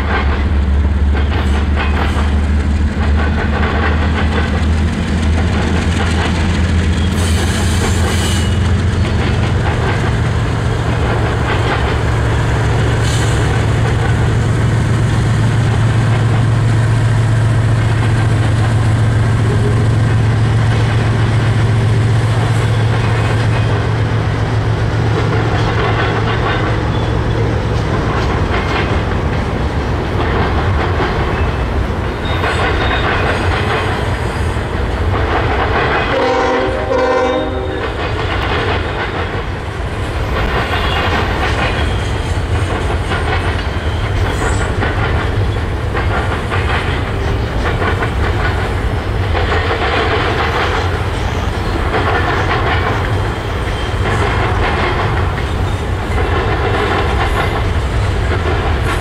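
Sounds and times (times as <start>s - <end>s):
diesel locomotive drone: 0.0s - 59.0s
freight cars rumble and wheel clicks: 0.0s - 59.0s
train horn blast: 36.1s - 38.0s.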